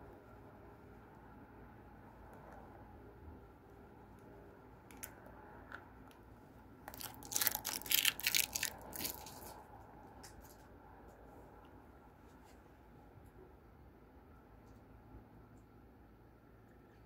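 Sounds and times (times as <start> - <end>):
plastic film crackling: 6.9 - 9.6.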